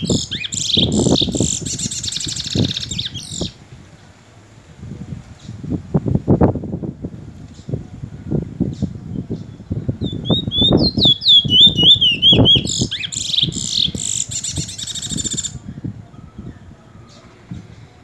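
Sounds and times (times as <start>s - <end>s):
bird singing whistled notes: 0.0s - 3.6s, 8.7s - 17.7s.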